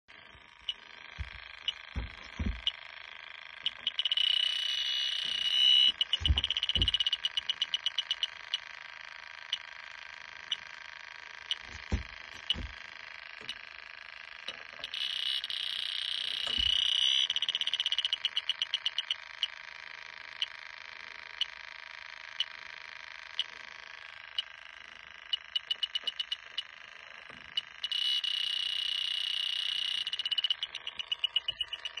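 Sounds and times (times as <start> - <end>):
continuous alarm tone: 0.1 - 32.0
leak detector ticking: 0.1 - 32.0
fast beeps: 0.6 - 2.9, 3.5 - 8.7, 9.4 - 9.7, 11.4 - 11.8, 12.4 - 12.8, 14.8 - 19.6, 20.4 - 20.6, 24.3 - 24.6, 25.2 - 26.8, 27.4 - 32.0
handling thumps: 1.2 - 2.7, 11.7 - 12.8.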